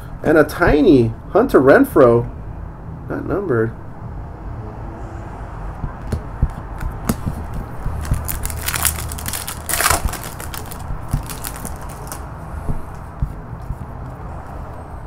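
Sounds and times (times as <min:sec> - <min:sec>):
cards clicking and rustling: 0:06.8 - 0:13.1
foil wrapper ripping: 0:07.8 - 0:12.3.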